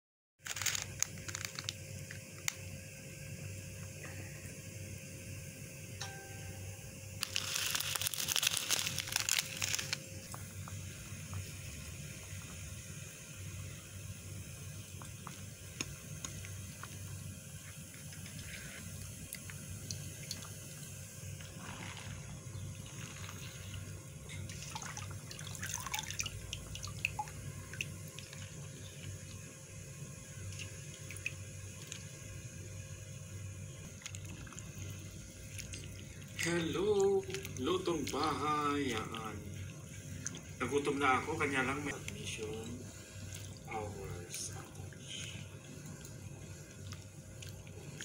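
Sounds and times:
faint steady hum: 0.4s - 48.0s
leaves crackling and rustling: 7.2s - 10.0s
water poured into a pot: 7.2s - 10.0s, 21.4s - 29.4s, 33.9s - 48.0s.

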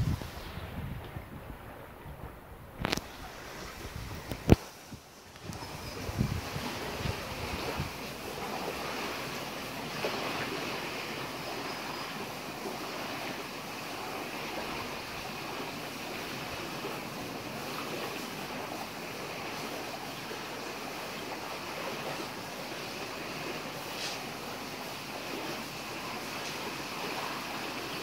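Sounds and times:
wind on microphone: 0.0s - 12.0s
small waves on sandy shore: 0.0s - 28.0s.

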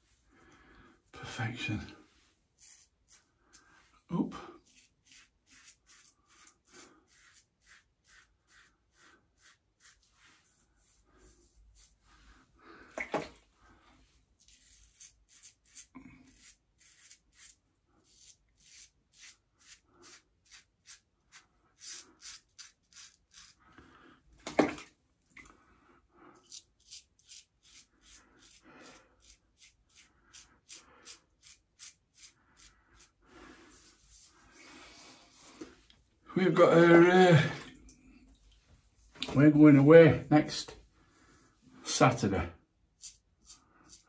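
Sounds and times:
razor scraping stubble: 2.6s - 3.4s, 4.6s - 11.0s, 14.4s - 23.6s, 26.4s - 28.6s, 29.2s - 33.2s, 43.0s - 44.0s.

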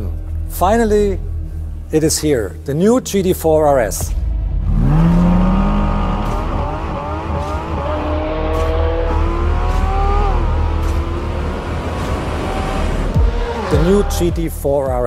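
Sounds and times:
car engine starting and revving: 4.0s - 14.6s
car engine accelerating hard: 4.3s - 14.4s.

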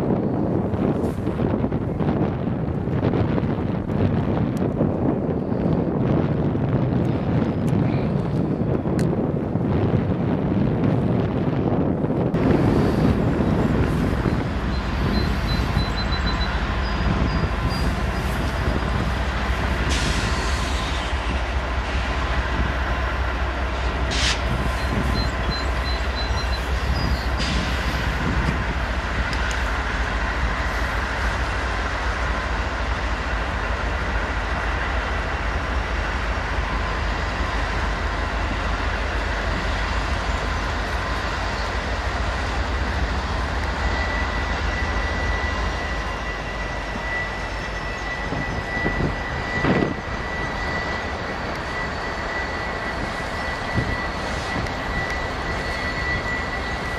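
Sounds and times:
locomotive engine rumble: 0.0s - 56.9s
train wheels rolling: 0.0s - 56.9s
high wheel squeal: 12.7s - 19.1s, 24.0s - 28.3s, 40.2s - 56.9s.

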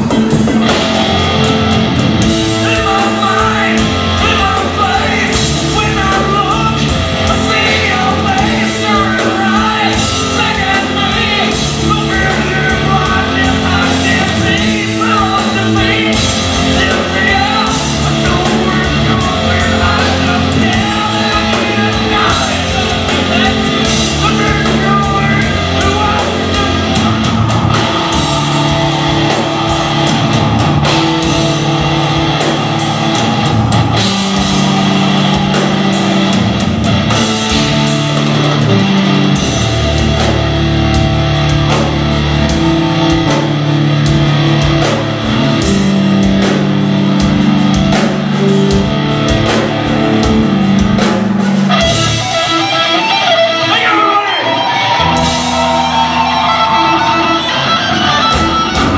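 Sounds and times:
metal band playing live: 0.0s - 58.9s
person singing and shouting: 2.4s - 36.5s, 52.0s - 58.9s.

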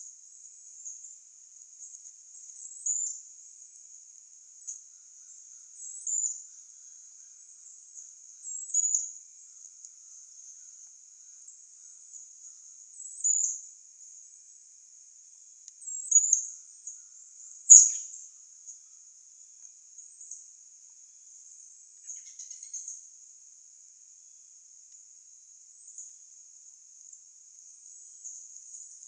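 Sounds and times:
high insect trill: 0.0s - 29.0s
bird chirping: 4.6s - 9.7s, 15.8s - 18.2s, 22.0s - 23.0s.

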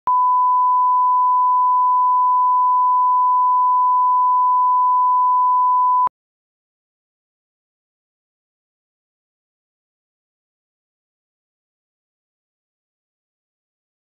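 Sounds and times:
single-pitch test tone: 0.1s - 6.1s.

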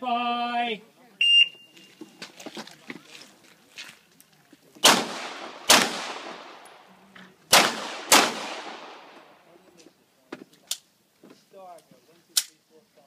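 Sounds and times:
pistol shots with echo: 4.8s - 6.9s, 7.5s - 9.4s.

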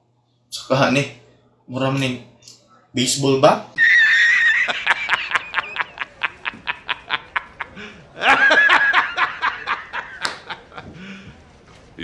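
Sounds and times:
man laughing hard: 3.8s - 11.0s.

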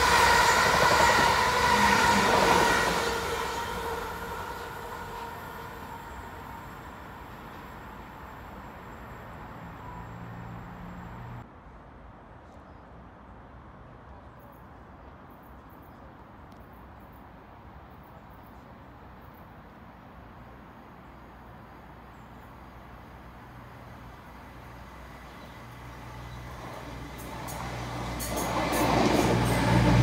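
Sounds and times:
distant diesel train hum: 0.0s - 11.4s, 20.4s - 30.0s
loud train sound: 0.0s - 11.4s, 21.6s - 30.0s
outdoor background noise: 0.0s - 30.0s.

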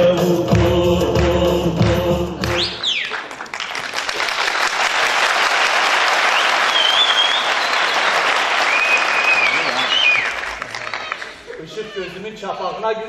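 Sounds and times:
music: 0.0s - 2.8s
high whistle: 2.5s - 3.2s, 6.3s - 10.4s
audience applause: 2.6s - 12.0s.

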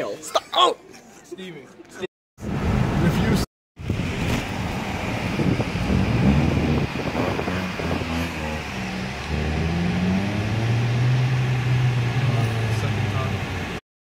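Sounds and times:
road noise: 2.4s - 13.8s
car engine hum: 3.8s - 13.8s.

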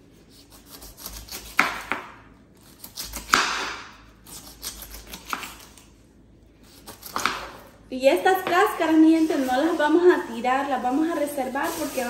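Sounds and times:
knife slicing pineapple rind: 0.1s - 5.9s, 6.6s - 7.7s.

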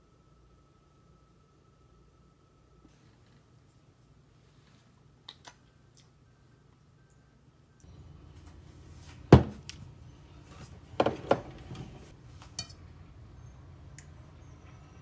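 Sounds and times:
spoon clinking on glass and metal: 12.6s - 12.9s.

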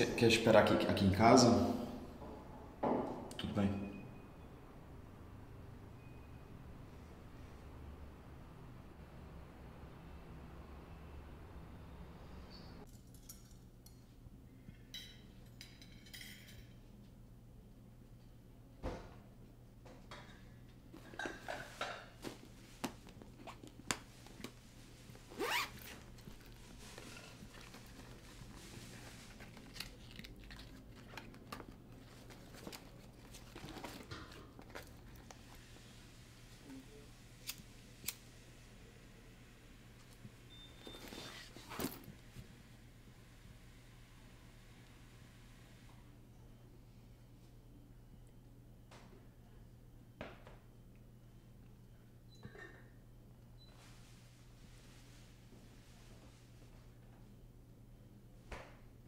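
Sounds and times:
dishes clinking: 14.8s - 16.8s, 20.1s - 22.2s
hand rummaging in cloth handbag: 22.2s - 35.5s, 40.8s - 42.1s.

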